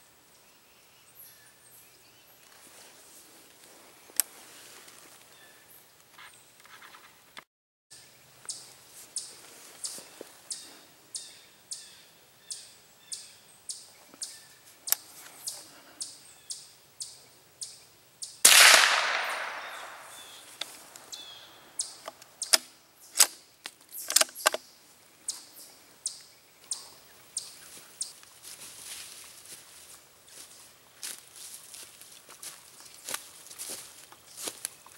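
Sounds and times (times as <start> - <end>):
rifle shot echoing: 18.4 - 20.6
sharp clicks: 21.9 - 24.6.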